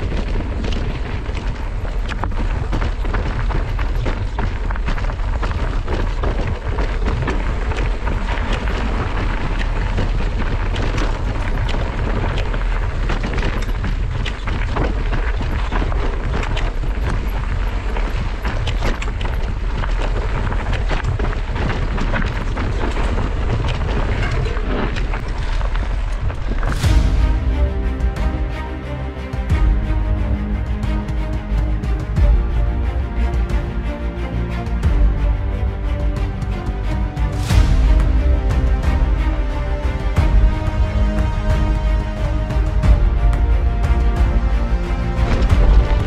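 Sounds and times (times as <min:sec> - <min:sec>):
bike clicks and rattles: 0:00.0 - 0:26.8
wind buffeting microphone: 0:00.0 - 0:46.0.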